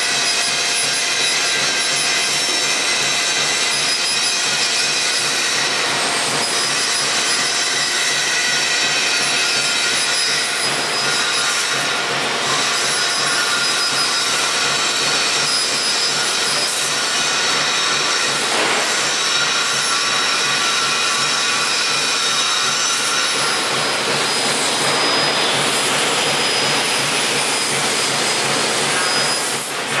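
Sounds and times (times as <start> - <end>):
laser cutter rushing hiss: 10.7 - 30.0.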